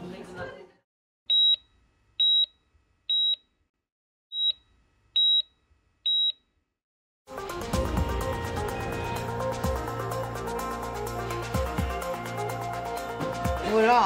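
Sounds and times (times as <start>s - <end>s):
heart monitor beeps: 1.3s - 3.4s, 4.3s - 6.4s
music: 7.3s - 14.0s.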